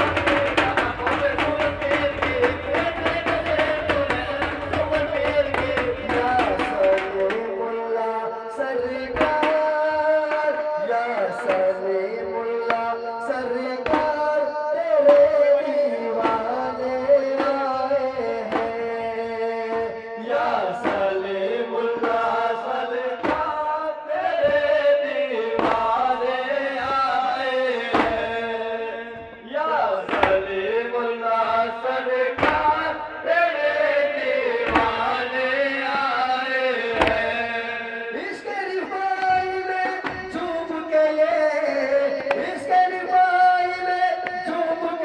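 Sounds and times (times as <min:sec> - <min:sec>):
hand-drum strikes: 0:00.0 - 0:07.7, 0:08.8 - 0:10.6, 0:11.3 - 0:20.0, 0:20.7 - 0:21.2, 0:22.0 - 0:23.7, 0:25.6 - 0:30.5, 0:32.4 - 0:40.9
man chant-like singing: 0:00.0 - 0:45.0.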